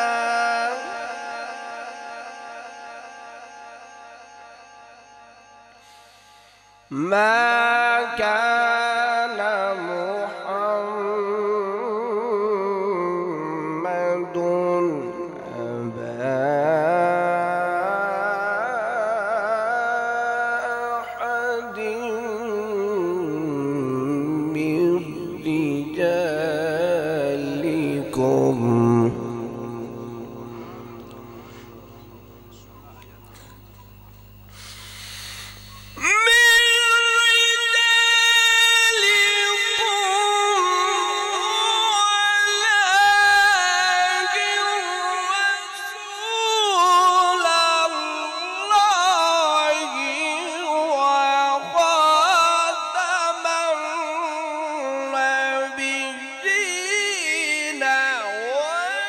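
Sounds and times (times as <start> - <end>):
man reciting melodically: 0.0 - 3.4, 6.9 - 33.8, 35.6 - 59.0
melodic solo recitation: 20.5 - 33.7.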